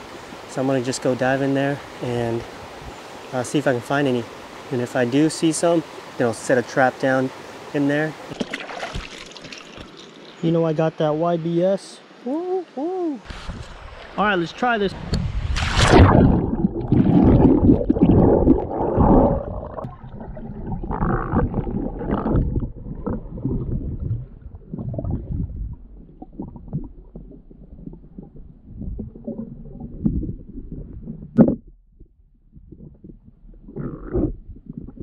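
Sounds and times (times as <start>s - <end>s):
underwater low rumbles and knocks: 15.0s - 35.0s
water churning and bubbling: 15.0s - 35.0s
diver splashing into water: 15.3s - 17.5s.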